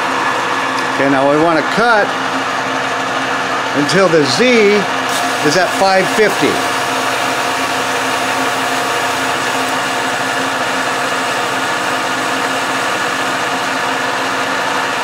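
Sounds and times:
metal lathe cutting: 0.0 - 15.0.

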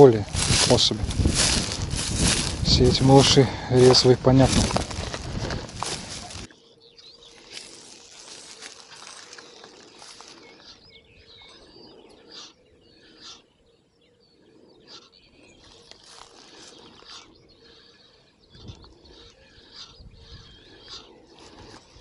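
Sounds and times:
wind rustling grass: 0.0 - 6.5
songbirds chirping and warbling: 0.0 - 22.0.

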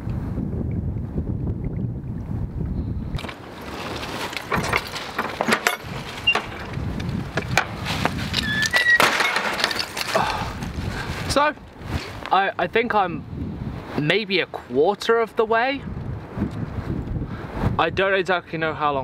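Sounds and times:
low wind rumble: 0.0 - 19.0
footsteps on loose slate: 3.2 - 12.4
metal gate clattering: 4.3 - 6.7, 8.4 - 10.1
gate squeak: 5.6 - 6.7, 8.4 - 9.4.

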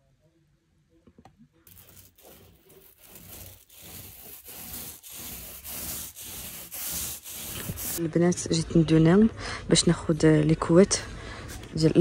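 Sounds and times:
paint roller rolling on wall: 1.7 - 8.0.

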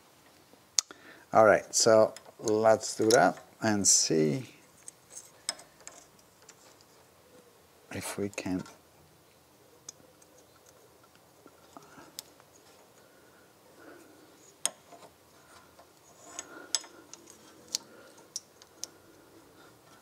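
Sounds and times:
faint handling noise: 1.4 - 20.0
small metal parts clicking: 4.8 - 7.0, 14.5 - 19.2.

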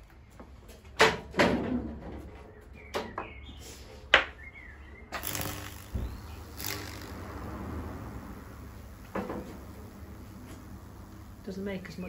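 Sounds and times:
low electrical hum: 5.0 - 12.0
electrical arc snapping: 5.1 - 12.0
sizzling hiss of burning wood: 5.2 - 12.0.

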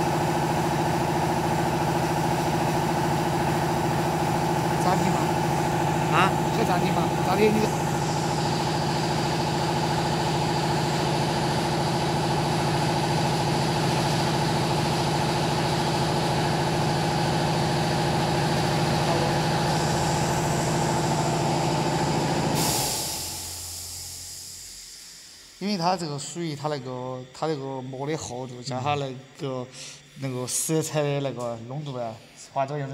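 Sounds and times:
electric machine hum: 0.0 - 32.9
hiss: 22.4 - 25.6.

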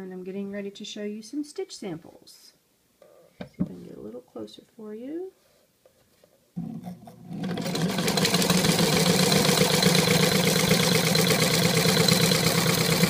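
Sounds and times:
sewing machine motor hum: 6.6 - 13.0
sewing machine stitching: 6.6 - 13.0.

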